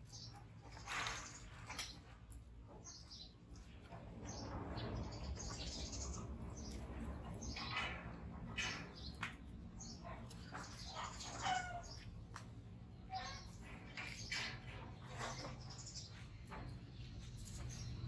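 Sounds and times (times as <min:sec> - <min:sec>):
animal squeaks and chirps: 0:09.9 - 0:12.1.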